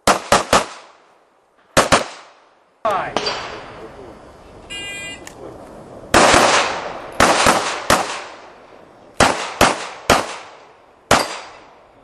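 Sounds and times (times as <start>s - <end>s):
gunshots with echo: 6.2s - 8.4s, 9.2s - 11.6s.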